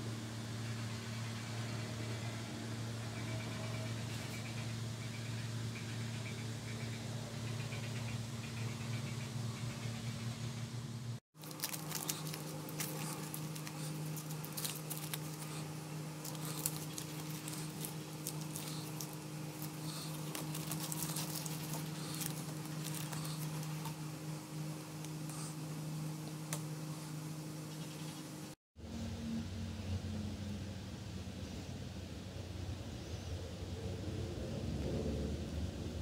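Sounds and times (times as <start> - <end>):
low hum: 0.0 - 36.0
masking tape peeling: 11.4 - 24.0.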